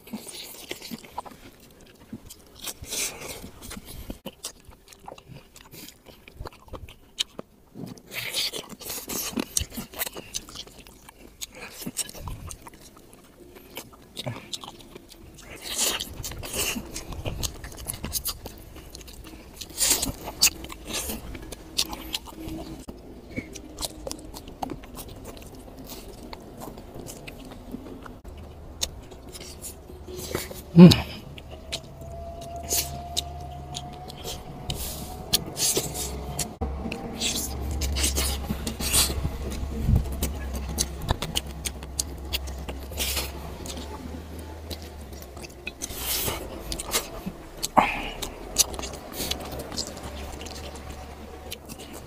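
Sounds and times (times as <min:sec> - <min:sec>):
chewing and lip smacks: 0:00.0 - 0:52.0
low rumble: 0:14.8 - 0:52.0.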